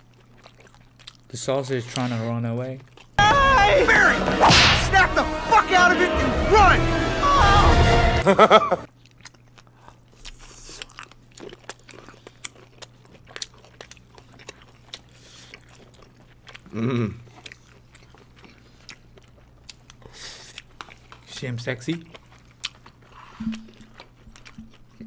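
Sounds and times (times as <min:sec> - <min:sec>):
mouth chewing and smacking: 0:00.0 - 0:03.2, 0:08.9 - 0:25.0.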